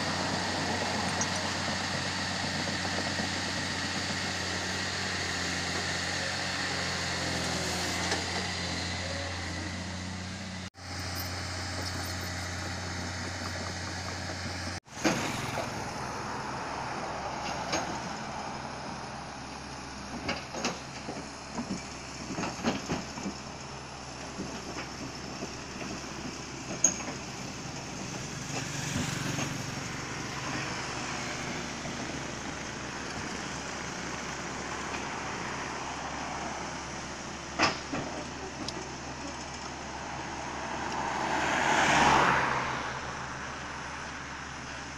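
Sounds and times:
excavator diesel engine running: 0.0s - 40.6s
steel tracks clanking on ramp: 24.3s - 30.7s, 37.4s - 39.6s.

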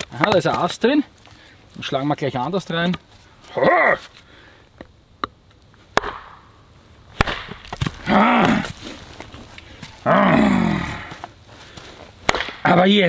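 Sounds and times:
hatchet chopping into wood: 6.0s - 6.4s, 7.2s - 8.0s, 12.3s - 12.8s.

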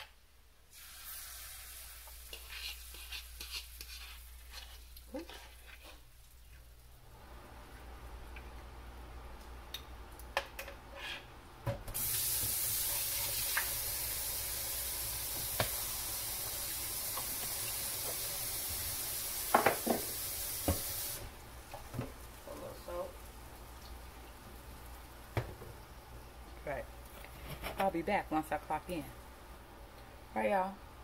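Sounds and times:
tap running into a sink: 19.5s - 21.0s.

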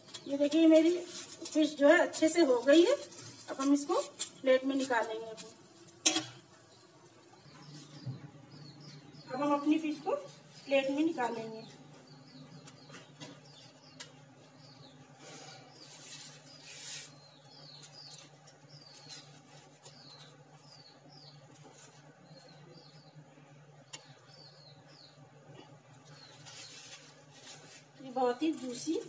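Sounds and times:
small bird chirping: 6.6s - 29.0s.

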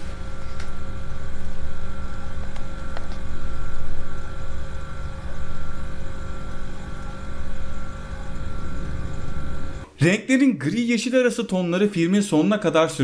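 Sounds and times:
low rumbling drone: 3.3s - 9.9s
thin steady high tone: 3.3s - 9.9s.

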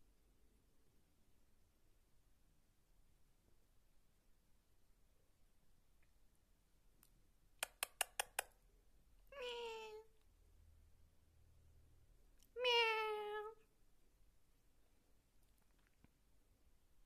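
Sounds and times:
sharp clicks: 7.6s - 8.6s
cat meowing: 9.3s - 10.1s, 12.4s - 13.6s.

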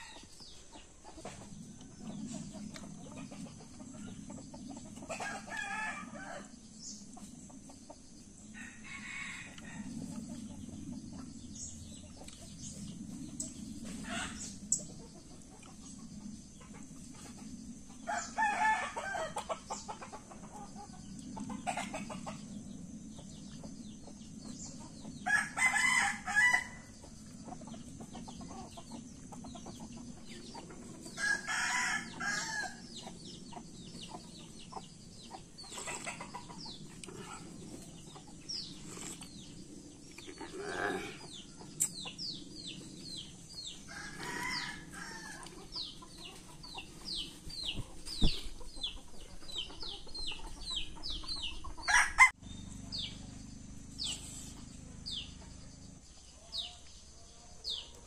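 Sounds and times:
rooster crowing: 5.2s - 6.5s, 8.6s - 9.9s, 18.1s - 19.4s, 25.2s - 26.9s, 31.2s - 32.8s, 43.8s - 45.6s, 51.8s - 52.4s.

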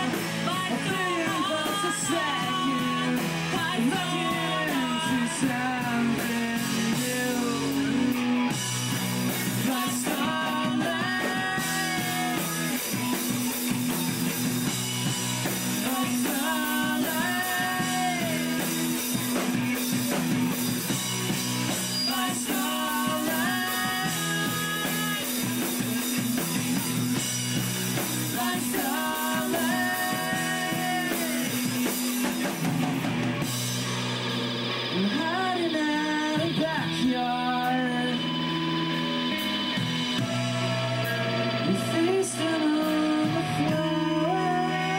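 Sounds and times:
rock band playing: 0.0s - 44.9s.

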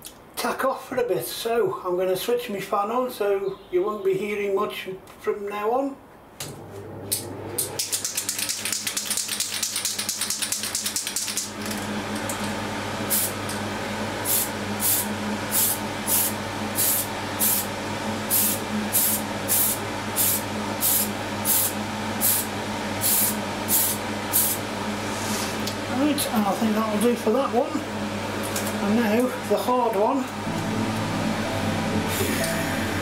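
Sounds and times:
spray can ball rattling: 7.9s - 11.5s.

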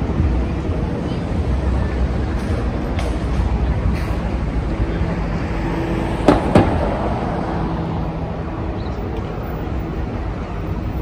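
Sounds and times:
low traffic rumble: 0.0s - 11.0s
sharp knocks: 6.3s - 7.0s.

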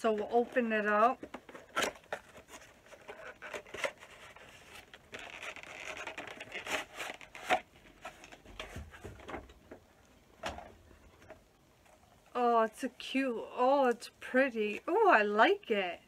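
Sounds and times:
packaging clicks and rustles: 0.0s - 9.6s.

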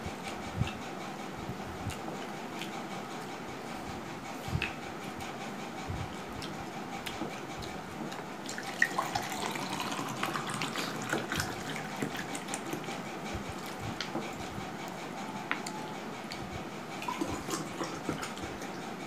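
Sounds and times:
water pouring into a glass: 8.6s - 11.8s.

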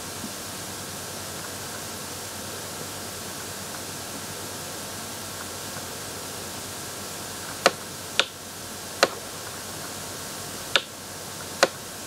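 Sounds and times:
microphone hiss: 0.0s - 12.0s
sharp clicks: 7.5s - 8.4s.

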